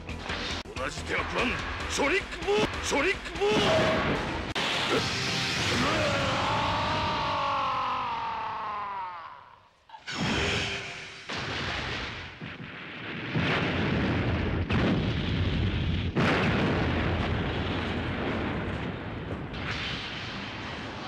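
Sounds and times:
explosion blasts: 0:10.1 - 0:21.0.

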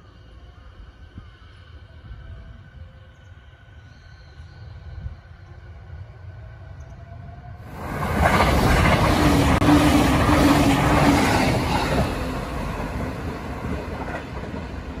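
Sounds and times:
train steady hum: 0:00.0 - 0:15.0
train wheels rushing on rail: 0:03.2 - 0:15.0.

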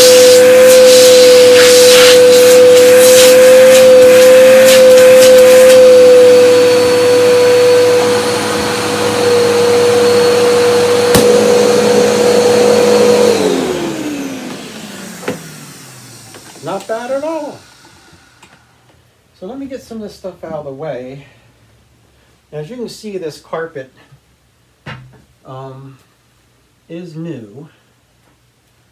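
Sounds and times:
vacuum cleaner whining: 0:00.0 - 0:19.0
vacuum cleaner switch click: 0:11.1 - 0:11.6.

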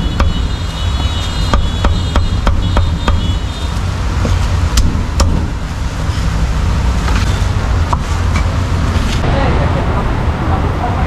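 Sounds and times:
cleaver chopping meat on wood: 0:00.0 - 0:03.4, 0:04.8 - 0:05.5
low rumble of street traffic: 0:00.0 - 0:11.0.

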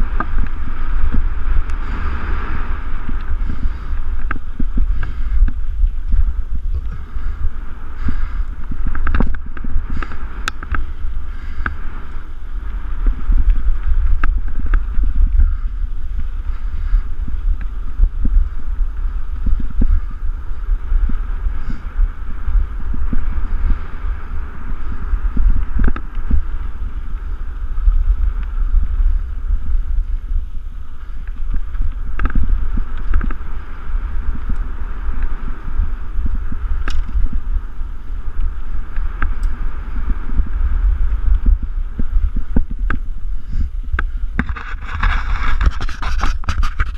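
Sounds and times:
bike tyre noise: 0:00.0 - 0:46.9
wind rumble on microphone: 0:00.0 - 0:46.9
bike knocks and rattles: 0:36.3 - 0:37.6.

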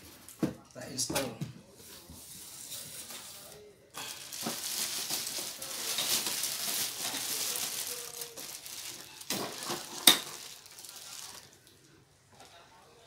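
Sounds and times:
plastic bag crinkling: 0:02.5 - 0:11.8.

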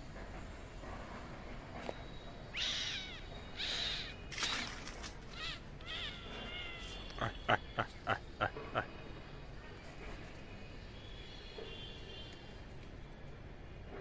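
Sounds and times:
crow cawing: 0:02.6 - 0:04.7, 0:05.3 - 0:08.8.

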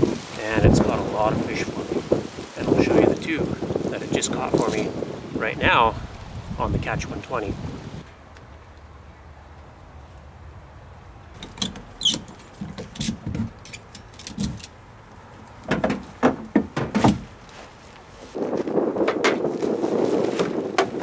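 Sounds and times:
kayak hull knocking on roof rack: 0:15.7 - 0:17.3, 0:20.3 - 0:21.0.

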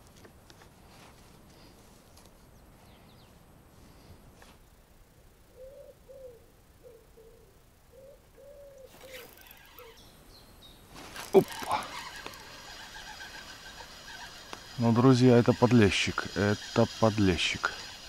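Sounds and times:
dove cooing: 0:05.5 - 0:10.0.

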